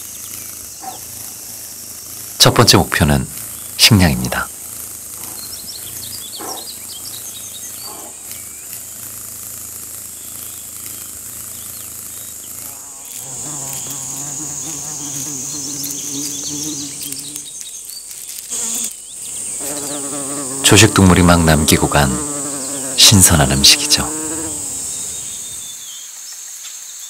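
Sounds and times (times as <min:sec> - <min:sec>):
fly buzzing: 0:00.0 - 0:25.8
insect drone: 0:00.0 - 0:27.0
short high insect chirps: 0:00.0 - 0:27.0.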